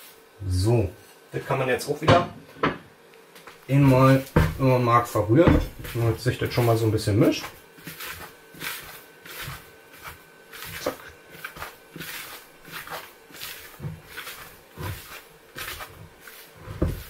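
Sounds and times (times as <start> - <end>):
hand stirring flour in plastic bowl: 3.6 - 17.0.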